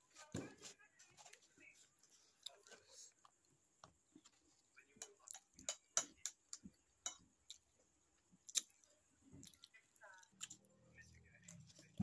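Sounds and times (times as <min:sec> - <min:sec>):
chewing with mouth clicks: 0:08.4 - 0:10.7.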